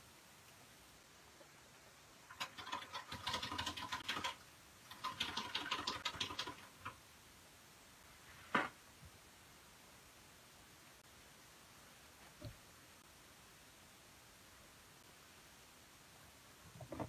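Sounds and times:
rapid clicking strokes: 2.3 - 7.0.

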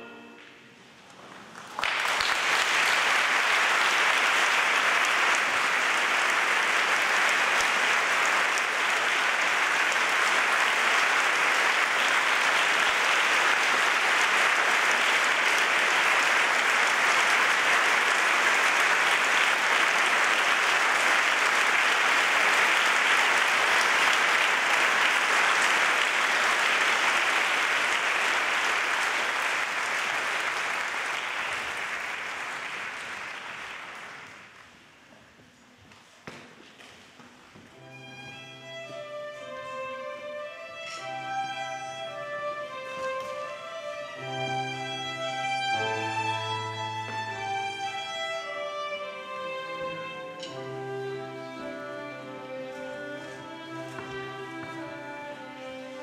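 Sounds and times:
audience applauding: 1.2 - 35.0.

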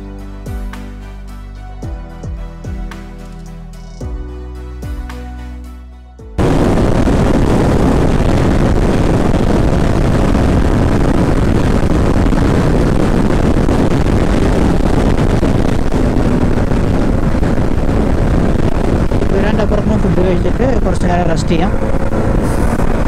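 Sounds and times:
motorcycle engine running: 6.4 - 23.0
wind and road noise: 6.4 - 23.0.

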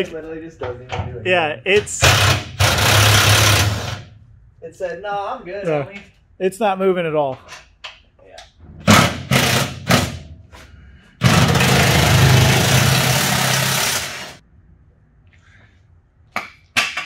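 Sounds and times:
pneumatic wrench running: 2.0 - 4.1, 8.9 - 10.2, 11.2 - 14.4.

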